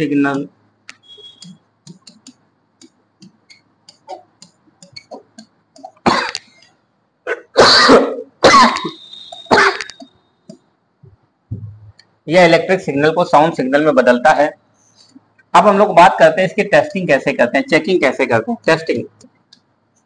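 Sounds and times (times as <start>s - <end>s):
man coughing: 5.2s - 6.4s, 7.2s - 10.0s.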